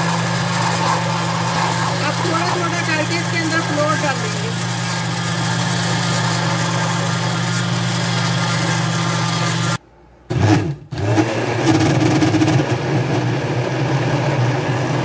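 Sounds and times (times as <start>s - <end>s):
electric blender motor running: 0.0s - 15.0s.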